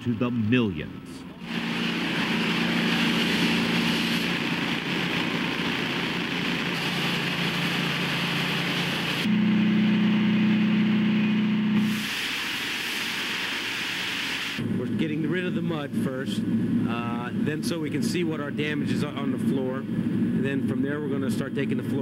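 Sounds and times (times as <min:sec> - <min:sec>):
machine hum: 0:00.0 - 0:20.6
pressure hose spray hissing: 0:01.4 - 0:09.3, 0:11.8 - 0:14.6.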